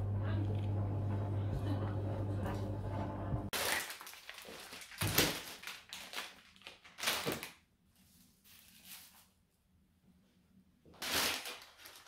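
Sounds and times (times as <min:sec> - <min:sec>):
plastic bag crinkling: 0:03.5 - 0:07.6, 0:11.0 - 0:12.0.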